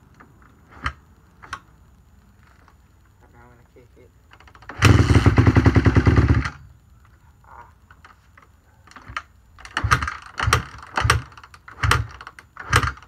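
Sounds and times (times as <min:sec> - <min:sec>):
motorcycle engine starting and dying: 0:04.4 - 0:06.7, 0:09.0 - 0:13.0.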